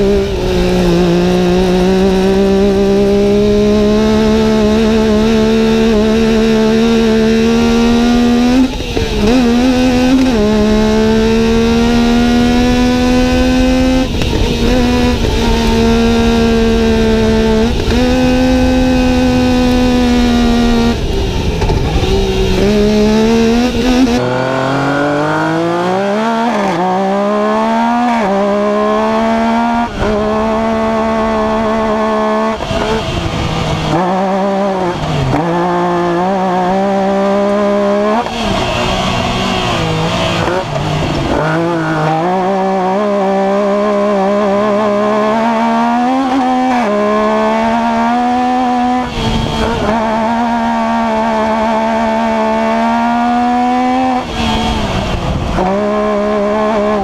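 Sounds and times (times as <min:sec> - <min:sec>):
engine revving through gear shifts: 0:00.0 - 0:57.0.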